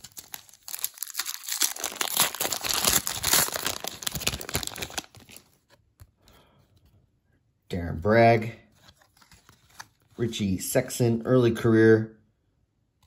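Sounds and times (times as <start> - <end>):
wrapper tearing and crinkling: 0.0 - 5.6.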